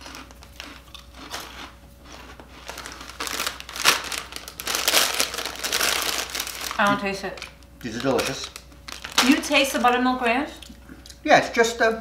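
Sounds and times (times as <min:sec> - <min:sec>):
crunching rice crisps: 0:00.0 - 0:09.3
plastic snack bag crinkling: 0:00.0 - 0:09.9.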